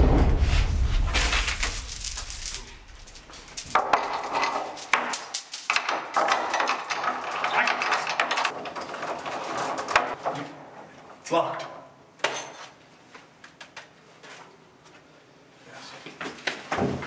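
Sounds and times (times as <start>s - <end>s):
metal chain clinking on door handles: 4.2s - 9.9s, 12.2s - 12.8s.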